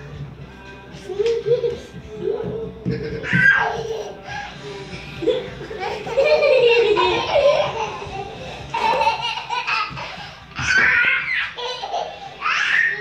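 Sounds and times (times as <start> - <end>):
young children laughing: 1.2 - 2.0, 2.8 - 13.0
high-pitched squealing laughter: 5.2 - 13.0.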